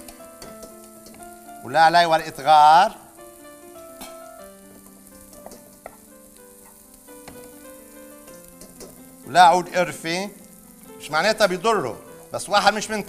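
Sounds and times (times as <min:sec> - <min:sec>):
sizzling in frying pan: 0:00.0 - 0:13.0
soft background music: 0:00.0 - 0:13.0.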